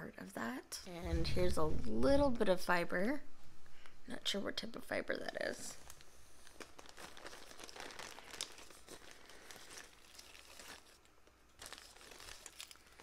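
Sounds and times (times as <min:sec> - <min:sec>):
gift wrap crinkling: 0:05.6 - 0:13.0.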